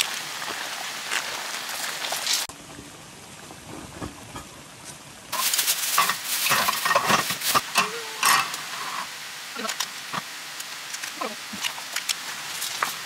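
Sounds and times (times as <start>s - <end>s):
food sizzling in a pan: 0.0s - 2.5s, 5.3s - 13.0s
utensil scraping against pan: 5.4s - 9.2s.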